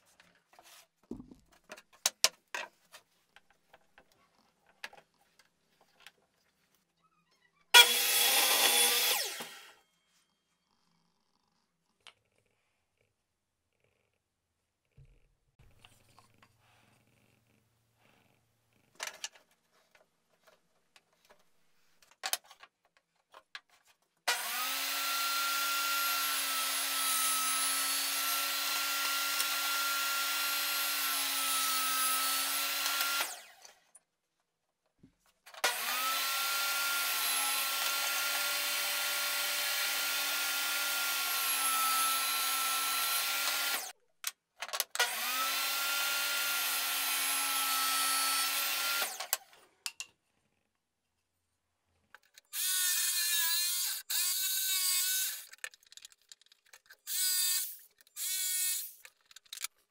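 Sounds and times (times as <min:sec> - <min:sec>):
table saw motor whine: 0:07.7 - 0:09.8, 0:35.7 - 0:43.9
saw ripping wooden panels: 0:24.3 - 0:33.7.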